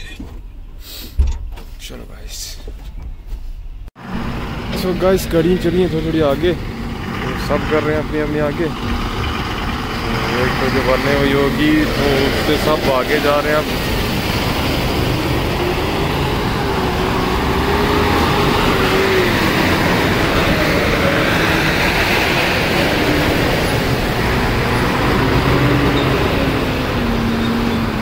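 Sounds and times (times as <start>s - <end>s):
diesel truck engines running: 3.9s - 28.0s.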